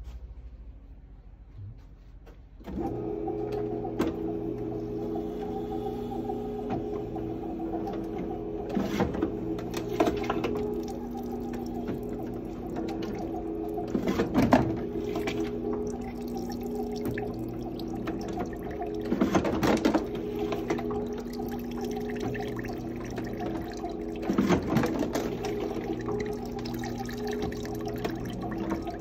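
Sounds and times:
juicer motor hum: 0:02.7 - 0:29.0
juicer clatter: 0:02.8 - 0:29.0
juice trickling into jug: 0:07.6 - 0:29.0.

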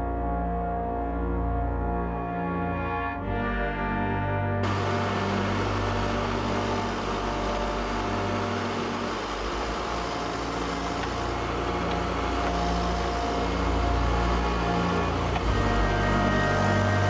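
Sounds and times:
diesel engine droning: 0:04.6 - 0:17.0.

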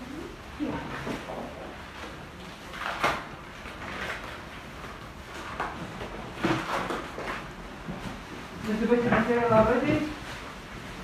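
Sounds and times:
plastic rustling: 0:00.6 - 0:11.0.

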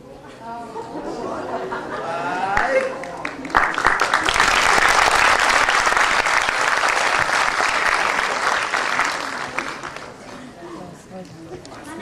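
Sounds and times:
audience applauding: 0:02.4 - 0:10.5.

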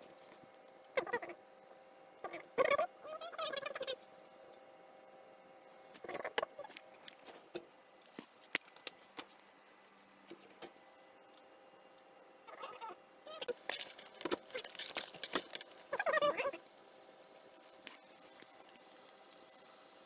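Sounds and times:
plastic food packet rustling: 0:13.5 - 0:16.2.

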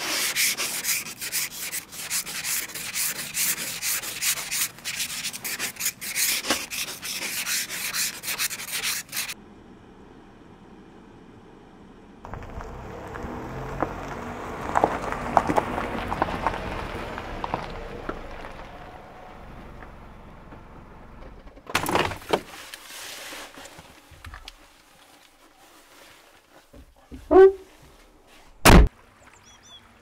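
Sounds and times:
short rustle: 0:21.8 - 0:28.6
squeak with bending pitch: 0:27.3 - 0:27.7
car door shutting: 0:28.6 - 0:28.9.

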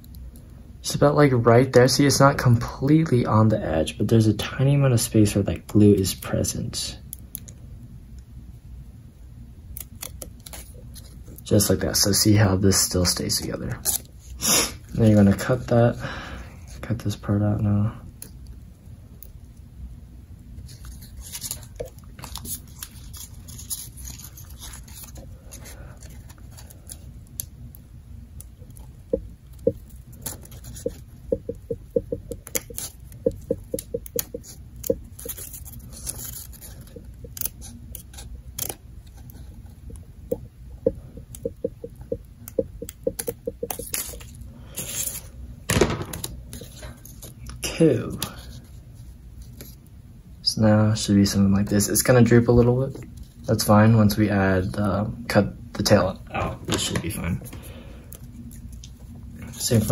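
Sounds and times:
scissors snipping paper: 0:09.8 - 0:10.7, 0:21.0 - 0:27.0, 0:33.8 - 0:38.8
paper rustling: 0:20.6 - 0:27.0, 0:33.8 - 0:39.5.

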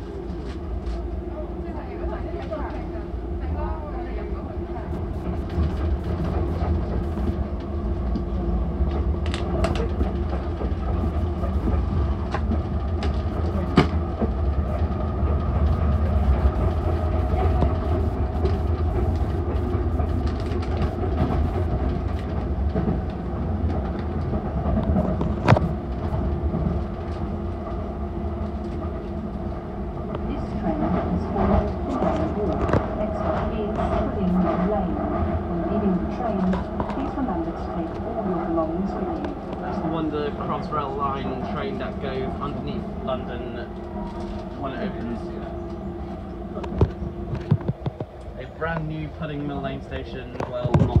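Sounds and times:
train rumbling on track: 0:00.0 - 0:51.0
steady hum: 0:04.4 - 0:07.6, 0:10.8 - 0:12.4, 0:13.0 - 0:22.4.

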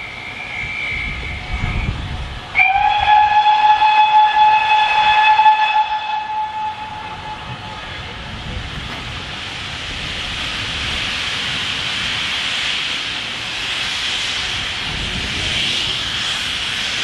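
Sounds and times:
steam locomotive whistle blast: 0:00.0 - 0:08.0.

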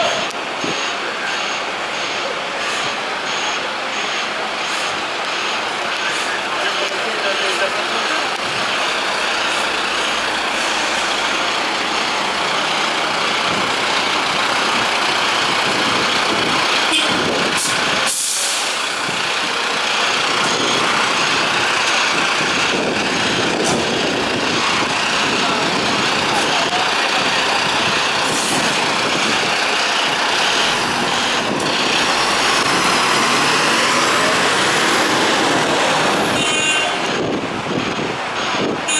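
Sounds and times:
diesel truck engines rumbling: 0:00.0 - 0:38.9
air brake hiss: 0:17.6 - 0:18.8.

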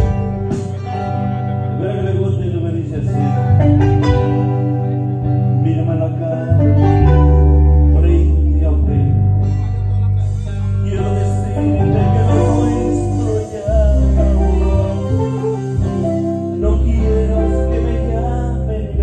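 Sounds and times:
bass notes: 0:00.0 - 0:19.0
man singing: 0:00.0 - 0:19.0.

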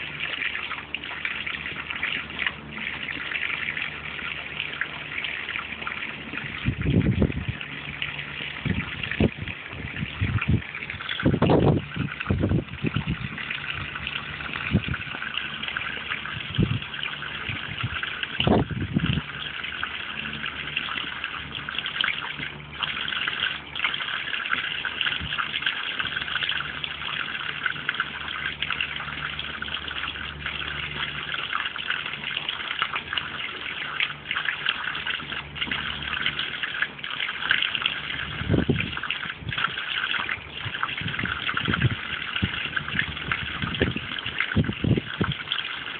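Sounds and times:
hose spraying water onto pond: 0:00.0 - 0:45.9.

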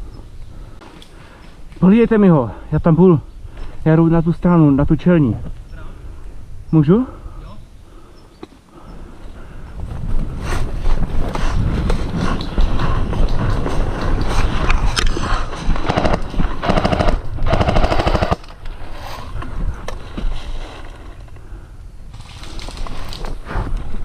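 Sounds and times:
player moving with gear: 0:09.9 - 0:21.4
airsoft gun full-auto bursts: 0:15.8 - 0:18.5.

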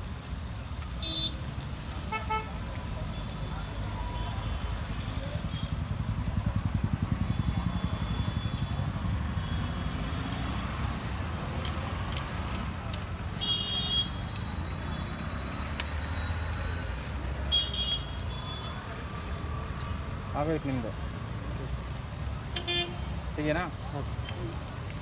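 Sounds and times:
engine rumbling: 0:02.7 - 0:25.0
metal tongs clicking on grill: 0:11.4 - 0:13.2
high electronic beeps: 0:14.2 - 0:22.4.

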